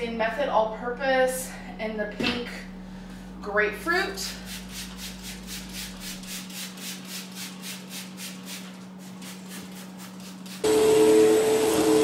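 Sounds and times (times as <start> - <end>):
steady low hum: 0.0 - 10.9
spray bottle squirting: 4.3 - 10.6
vacuum cleaner whining: 10.6 - 12.0.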